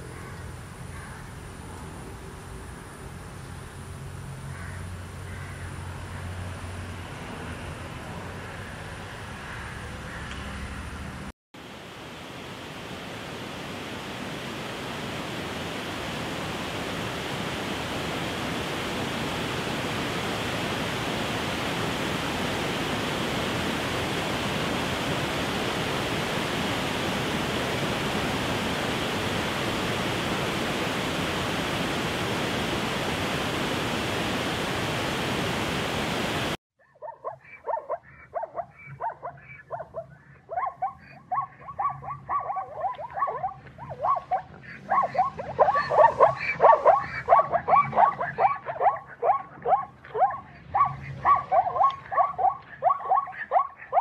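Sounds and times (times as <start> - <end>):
rushing water: 11.6 - 36.6, 42.3 - 49.5
zebras barking: 37.0 - 54.0.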